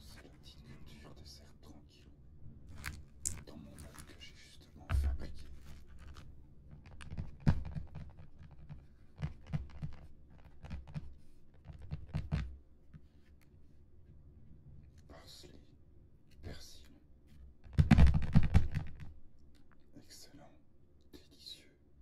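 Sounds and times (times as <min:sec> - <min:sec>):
fingertips tapping on cardboard box: 0:06.8 - 0:12.5.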